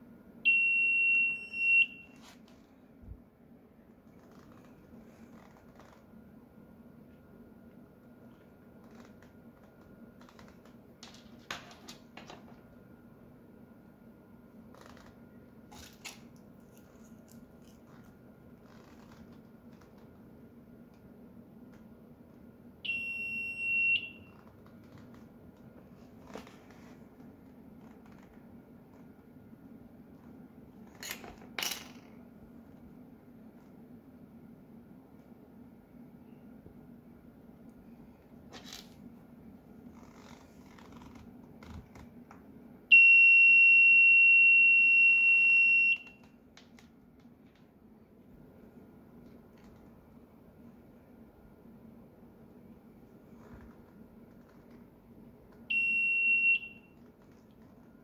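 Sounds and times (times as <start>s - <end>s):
high electronic alarm beep: 55.7s - 56.8s.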